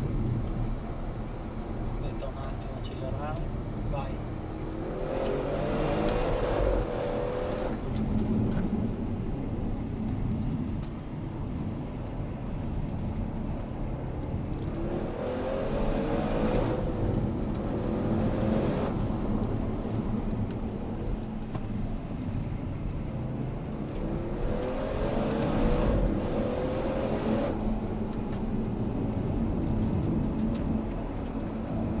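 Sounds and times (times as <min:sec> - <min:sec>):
car engine revving: 0:04.4 - 0:08.0, 0:14.5 - 0:21.2, 0:23.3 - 0:27.9.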